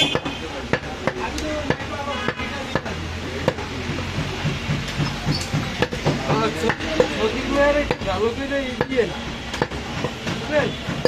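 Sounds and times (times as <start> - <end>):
cleaver chopping on wooden block: 0.0 - 3.7, 4.4 - 7.2, 8.8 - 11.0
voices chattering: 0.0 - 11.0.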